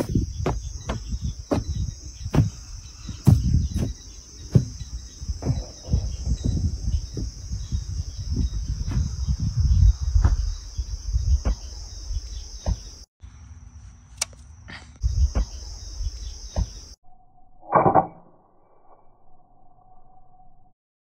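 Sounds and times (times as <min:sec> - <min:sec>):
wind rumbling on microphone: 0:00.0 - 0:12.9, 0:15.0 - 0:16.8
crickets singing: 0:00.0 - 0:17.4.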